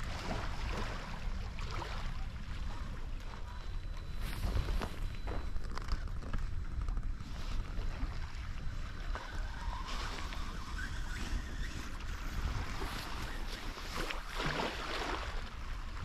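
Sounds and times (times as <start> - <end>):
wind buffeting microphone: 4.1 - 16.0.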